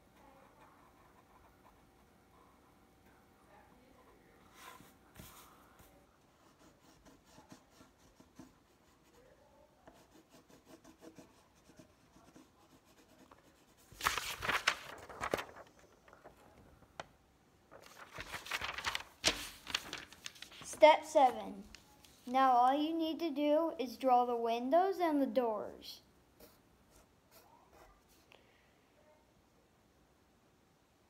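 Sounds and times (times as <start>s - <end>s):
pencil scratching on paper: 4.5s - 14.0s
paper rustling: 13.7s - 17.1s, 17.7s - 22.4s.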